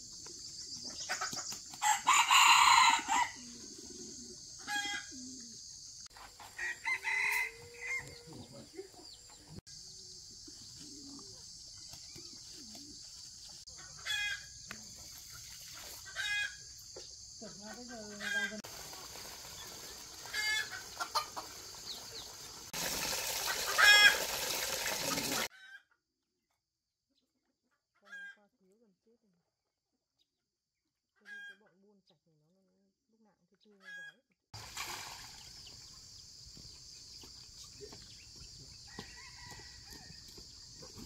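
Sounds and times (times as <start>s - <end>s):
chickens clucking: 0.1s - 2.2s, 3.2s - 25.5s.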